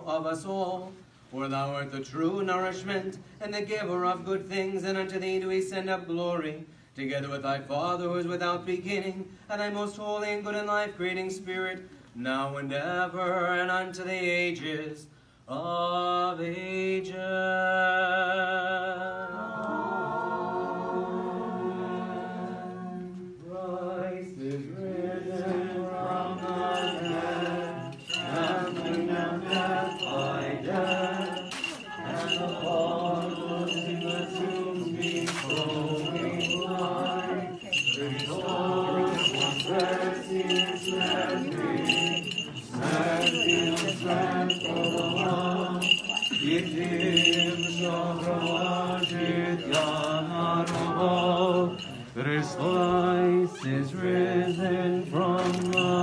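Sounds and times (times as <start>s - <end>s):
voices chanting amen: 17.6s - 56.0s
crowd singing and talking: 19.1s - 56.0s
small bell ringing: 26.1s - 53.3s, 54.2s - 56.0s
jingling clicks: 26.4s - 52.9s, 54.4s - 56.0s.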